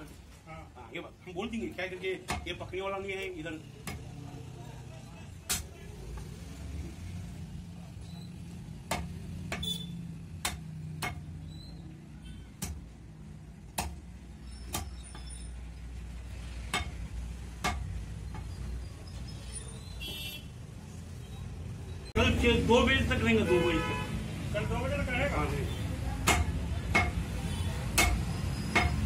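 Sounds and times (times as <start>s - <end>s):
traffic rumble: 0.0s - 29.0s
cleaver chopping meat on wood: 2.2s - 2.6s, 3.8s - 4.1s, 8.8s - 11.4s, 12.6s - 12.9s, 13.7s - 14.1s, 14.7s - 15.2s, 16.6s - 17.0s, 17.6s - 18.5s, 26.2s - 29.0s.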